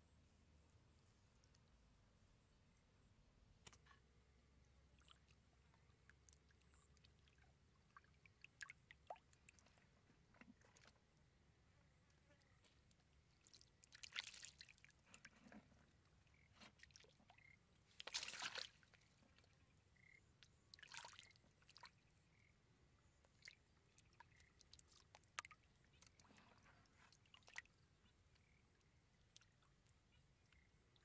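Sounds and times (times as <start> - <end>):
water splashes: 13.2 - 22.1.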